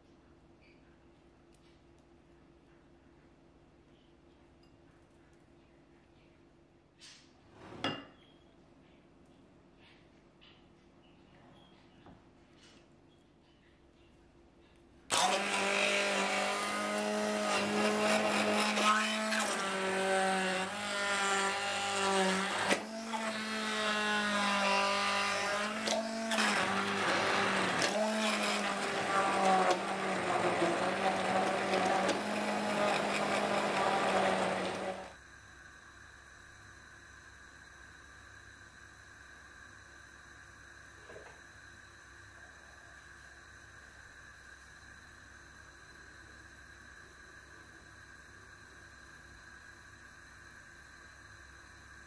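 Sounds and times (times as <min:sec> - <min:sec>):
immersion blender motor running: 0:15.1 - 0:35.2.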